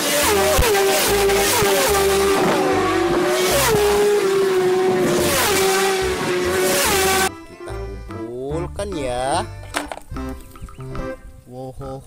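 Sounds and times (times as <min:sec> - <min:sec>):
racing motorcycles revving high: 0:00.0 - 0:07.3.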